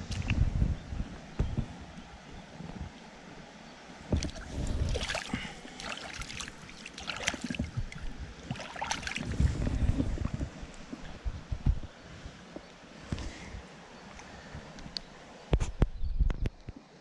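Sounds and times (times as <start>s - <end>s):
water splashing in a creek: 4.0s - 11.2s.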